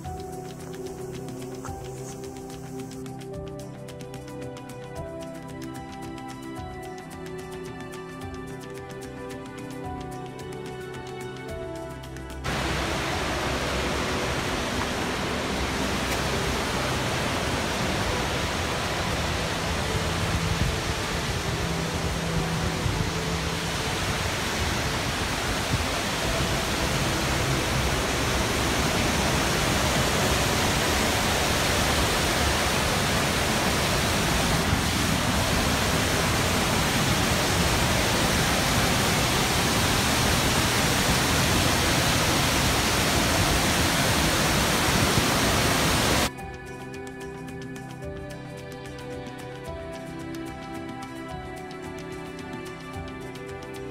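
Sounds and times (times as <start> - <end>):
waterfall rushing over rock: 0.0 - 46.3
soft background music: 0.0 - 53.9.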